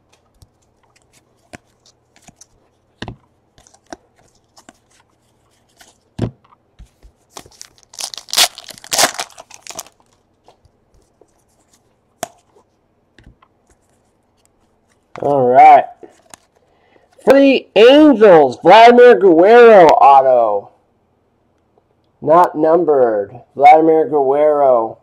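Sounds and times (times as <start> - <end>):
foil wrapper tearing and crinkling: 7.4 - 10.2.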